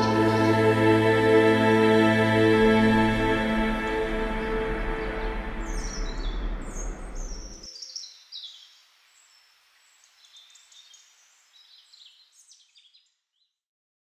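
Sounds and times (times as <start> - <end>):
background music: 0.0 - 7.7
small birds chirping: 4.3 - 13.6.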